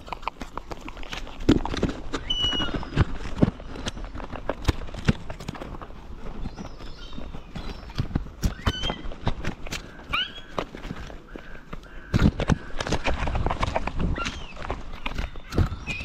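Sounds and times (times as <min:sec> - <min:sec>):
gull squeaky call: 0:02.2 - 0:02.9, 0:08.4 - 0:09.1, 0:09.9 - 0:10.6.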